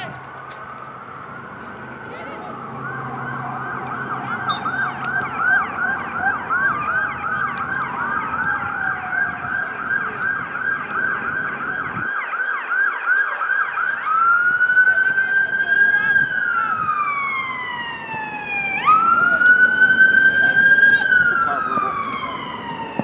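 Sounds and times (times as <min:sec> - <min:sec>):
siren in a fast yelp: 0:00.0 - 0:23.0
wailing siren tone: 0:00.0 - 0:23.0.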